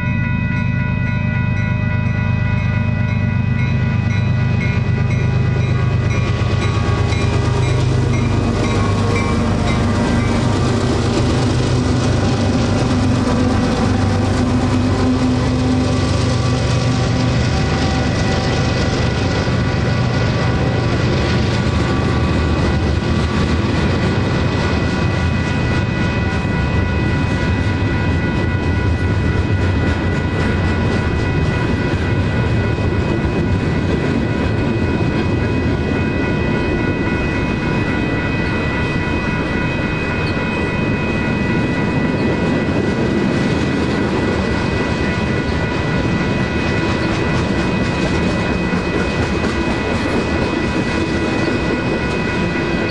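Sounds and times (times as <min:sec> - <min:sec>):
electronic crossing bells ringing: 0:00.0 - 0:52.9
train wheels rumbling on rail: 0:00.0 - 0:52.9.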